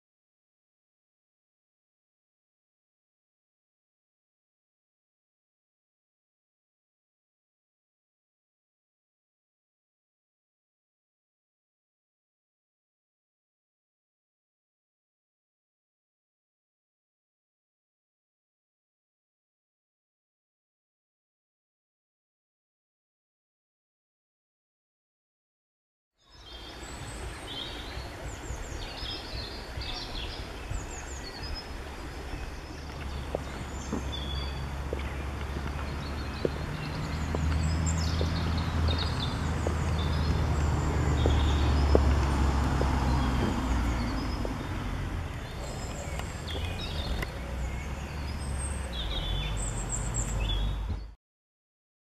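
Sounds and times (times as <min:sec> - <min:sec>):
songbirds chirping and trilling: 0:26.2 - 0:51.2
low outdoor rumble: 0:26.6 - 0:51.1.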